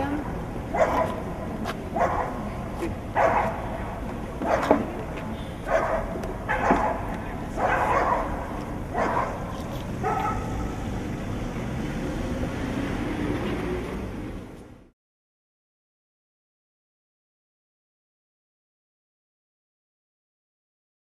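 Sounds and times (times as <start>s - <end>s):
steady background noise: 0.0s - 14.9s
dog barking: 0.7s - 1.2s, 1.9s - 2.4s, 3.2s - 3.8s, 4.4s - 4.8s, 5.6s - 10.6s.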